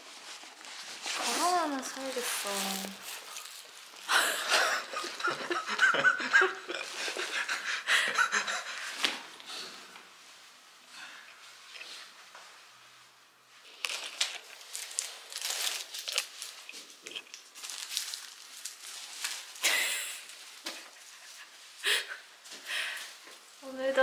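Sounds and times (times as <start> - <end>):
plastic bag rustling: 0.0 - 6.1, 13.6 - 21.0.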